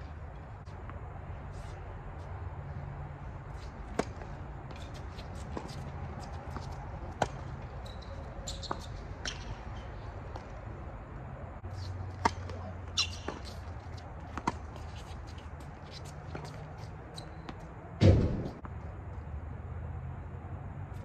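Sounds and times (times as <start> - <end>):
shoes squeaking on court: 3.4 - 18.8
racket hitting tennis ball: 3.6 - 10.5, 11.8 - 16.7.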